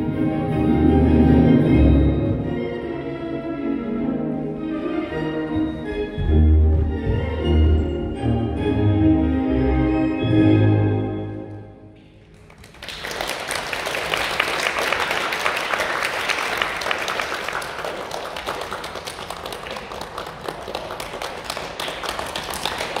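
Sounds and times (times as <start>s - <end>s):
group clapping: 12.2s - 23.0s.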